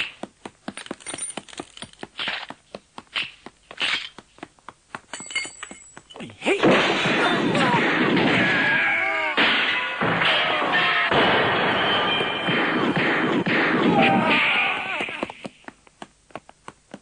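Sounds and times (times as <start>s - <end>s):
bullets ricocheting off walls: 6.6s - 11.9s
gunfire barrage: 6.6s - 14.6s.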